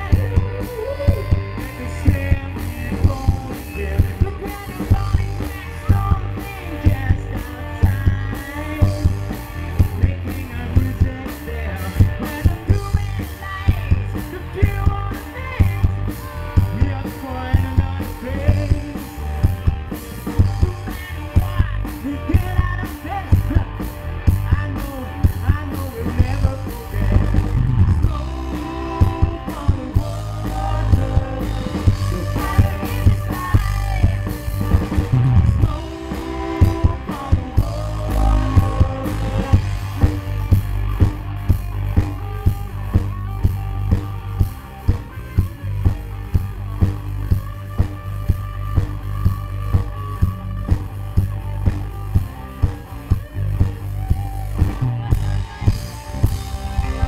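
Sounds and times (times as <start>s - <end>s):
man singing: 0.0s - 41.2s, 52.5s - 57.0s
drum beat: 0.0s - 57.0s
electric guitar: 0.0s - 57.0s.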